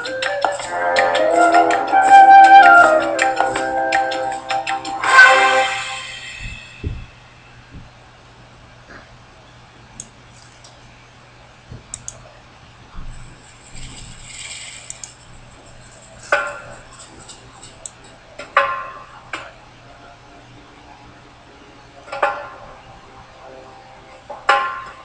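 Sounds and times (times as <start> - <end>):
sharp clicks: 11.9 - 12.2
short hiss: 13.6 - 15.2.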